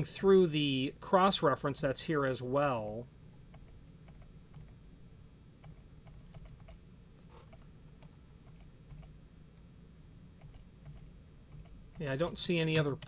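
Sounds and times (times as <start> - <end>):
low steady hum: 0.0 - 13.0
faint computer clicks: 10.4 - 13.0.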